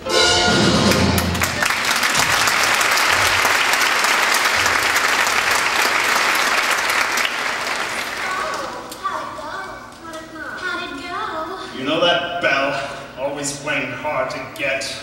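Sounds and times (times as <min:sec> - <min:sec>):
audience applauding and cheering: 0:00.4 - 0:09.0.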